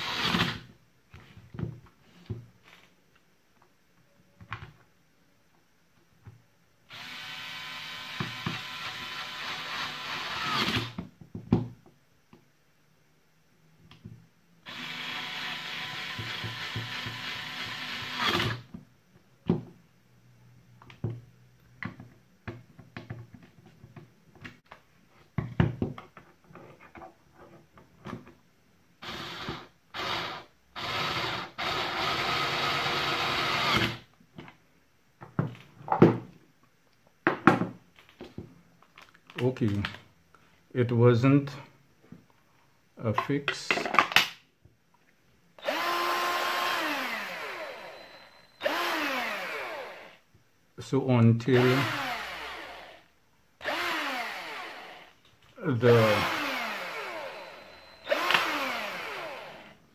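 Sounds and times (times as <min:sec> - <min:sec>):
electric screwdriver motor running: 0:06.9 - 0:11.0, 0:14.7 - 0:18.6, 0:45.6 - 0:50.2, 0:51.6 - 0:53.0, 0:53.6 - 0:55.1, 0:55.9 - 0:59.8.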